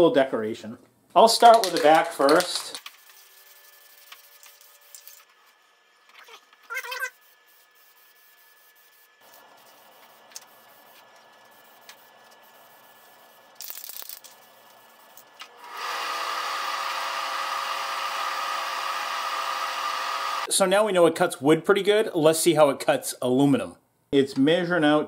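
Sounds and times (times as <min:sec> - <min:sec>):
aerosol can spraying: 0:07.2 - 0:15.2.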